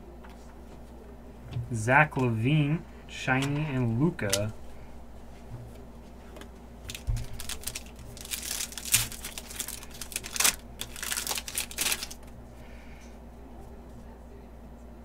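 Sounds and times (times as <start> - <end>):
foil wrapper tearing and crinkling: 6.9 - 12.4.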